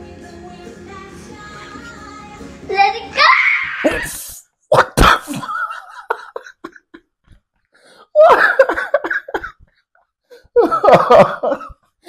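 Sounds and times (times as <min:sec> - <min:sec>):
high wheeze: 0:03.8 - 0:04.6
man laughing: 0:04.7 - 0:07.0, 0:08.2 - 0:09.5, 0:10.5 - 0:11.8.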